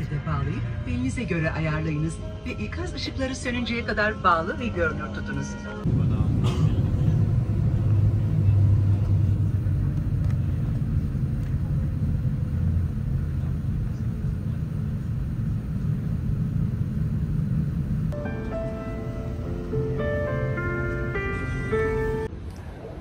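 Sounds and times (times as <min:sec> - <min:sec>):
airliner cabin rumble: 0:05.8 - 0:22.3.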